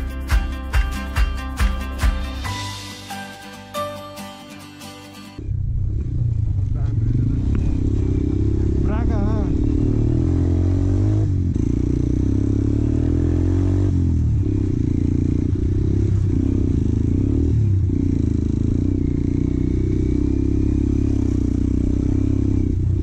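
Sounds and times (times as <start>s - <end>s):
motorcycle engine running: 5.4s - 23.0s.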